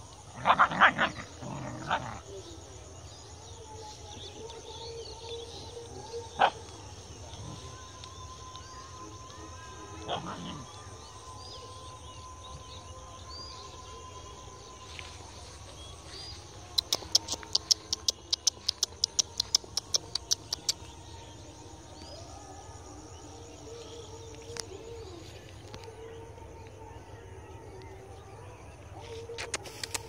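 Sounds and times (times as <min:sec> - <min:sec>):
small birds chirping: 0:14.7 - 0:22.3.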